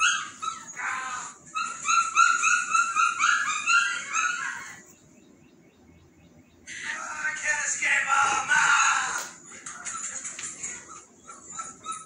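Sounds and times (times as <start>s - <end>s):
puppies yipping and whining: 0.0s - 4.9s, 9.6s - 12.0s.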